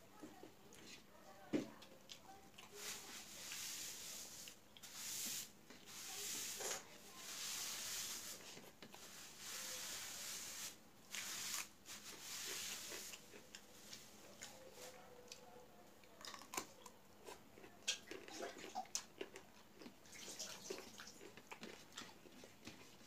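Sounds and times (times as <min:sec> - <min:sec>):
fingers mixing food on metal plate: 0:01.8 - 0:23.0.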